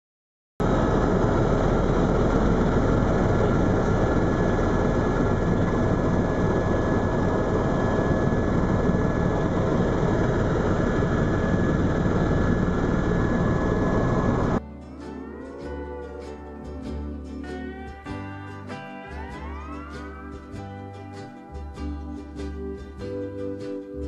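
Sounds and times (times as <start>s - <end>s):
helicopter rotor and turbine rush: 0.6s - 14.6s
high whine: 0.6s - 24.0s.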